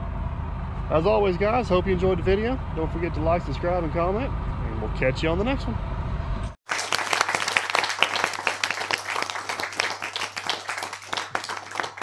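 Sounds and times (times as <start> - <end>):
low hum: 0.0 - 6.6
crowd applauding: 6.6 - 12.0.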